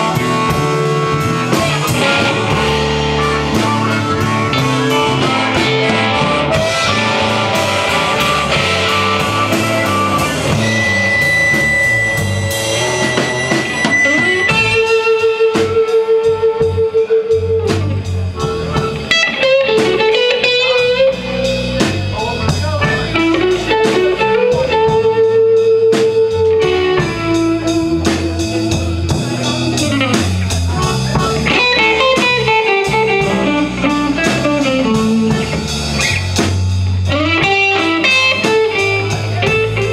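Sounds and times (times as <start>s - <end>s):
harmonica notes: 0.0s - 25.7s
blues band playing: 0.0s - 39.9s.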